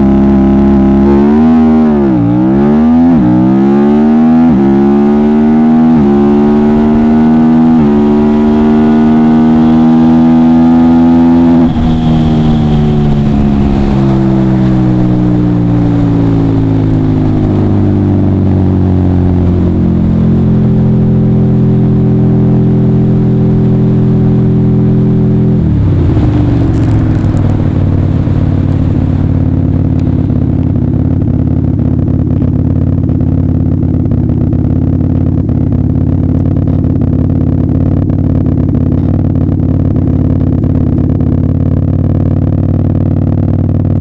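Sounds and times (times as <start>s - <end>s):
motorcycle engine winding down: 4.5s - 44.0s
wind rush: 6.1s - 22.1s, 22.9s - 31.4s.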